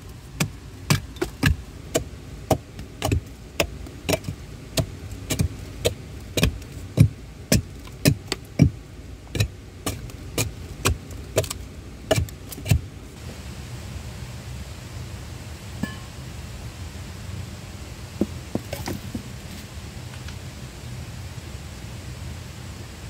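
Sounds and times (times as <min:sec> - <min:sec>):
hand tool striking wood: 0:00.4 - 0:12.8, 0:18.2 - 0:19.3.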